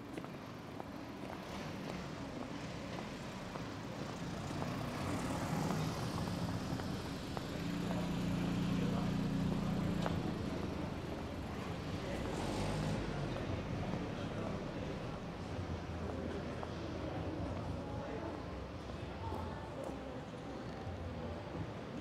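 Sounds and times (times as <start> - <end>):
car driving on cobblestones: 0.0 - 22.0.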